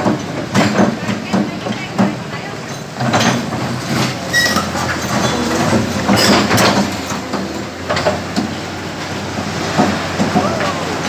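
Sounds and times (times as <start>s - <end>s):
diesel engine running: 0.0s - 11.0s
steel bucket scraping concrete: 3.0s - 8.6s.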